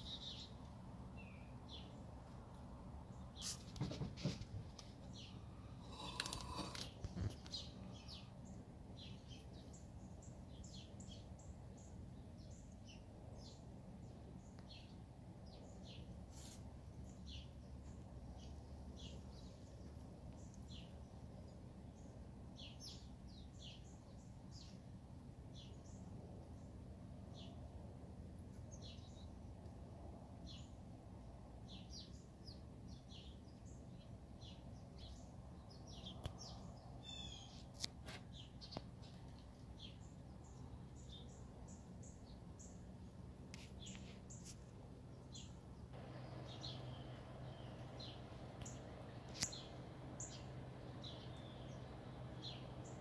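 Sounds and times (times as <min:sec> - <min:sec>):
songbirds chirping: 0:00.0 - 0:53.0
low background rumble: 0:44.8 - 0:53.0.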